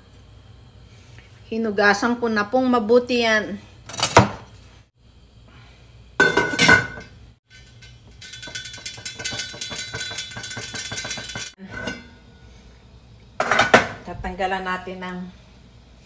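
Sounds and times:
metal lid clank: 6.2s - 12.2s
lid ringing and clicking on rim: 7.8s - 11.5s.

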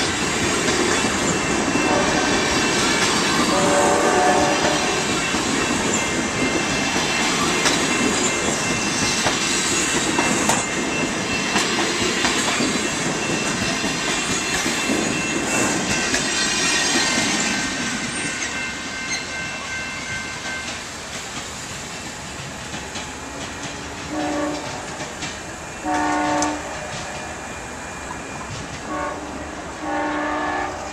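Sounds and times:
train wheels clicking over rail joints: 0.0s - 19.2s, 20.3s - 29.1s
distant locomotive horn: 1.7s - 2.5s, 3.4s - 5.1s, 24.1s - 25.1s, 25.8s - 27.6s, 28.8s - 30.9s.

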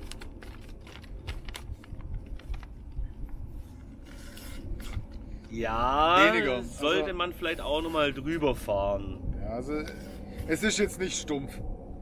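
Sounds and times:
knife cutting paper: 4.0s - 5.2s.

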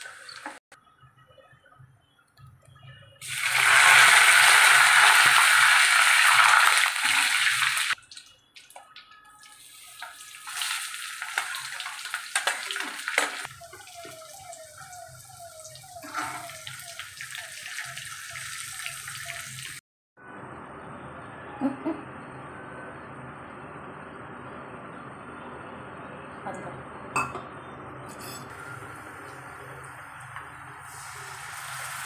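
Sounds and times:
leaves sizzling in hot oil: 3.2s - 8.8s, 9.5s - 19.8s, 28.5s - 32.0s
onions frying with soft sizzle: 3.2s - 8.8s, 9.4s - 19.8s, 28.8s - 32.0s
steel spoon scraping pan: 28.1s - 28.7s.

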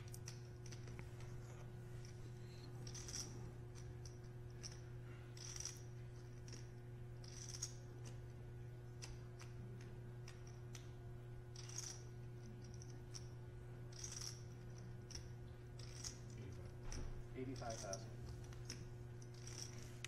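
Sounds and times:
low electrical hum: 0.0s - 20.0s
poker chips clicking: 2.8s - 4.8s, 5.4s - 8.2s, 11.6s - 12.0s, 13.9s - 15.2s, 15.8s - 16.3s.

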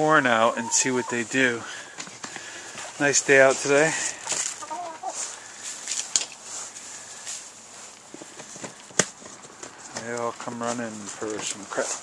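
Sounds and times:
chickens pecking corn: 0.0s - 12.0s
chickens rustling on hay: 0.0s - 12.0s.

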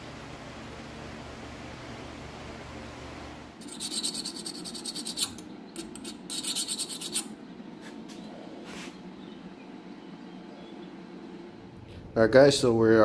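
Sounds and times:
hand scraping steel blade: 3.6s - 7.4s.

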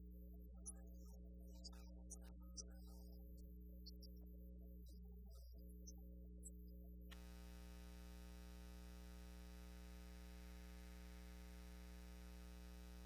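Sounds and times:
low electrical hum: 0.0s - 13.0s
faint steady hiss: 6.6s - 13.0s.

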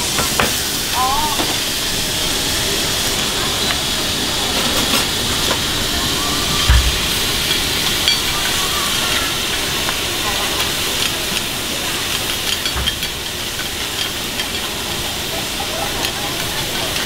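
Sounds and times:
food sizzling on hot plate: 0.0s - 17.0s
dull thump: 6.6s - 7.5s.

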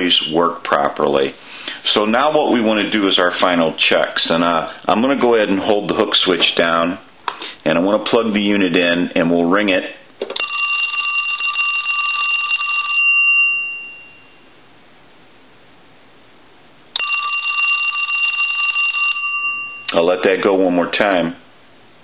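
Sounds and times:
telephone bell ringing: 10.4s - 14.5s, 17.0s - 19.9s.

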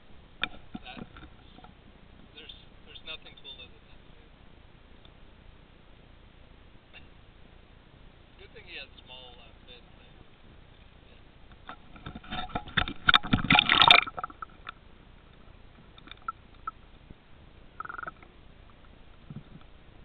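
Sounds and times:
faint underwater clicks: 5.0s - 5.2s, 11.4s - 17.2s, 17.8s - 19.8s
water splashing and gurgling: 12.3s - 14.8s, 17.8s - 18.3s.

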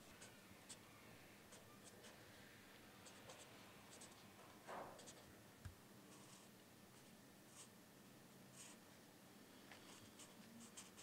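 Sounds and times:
pen scratching on paper: 3.0s - 4.2s, 9.9s - 11.0s.

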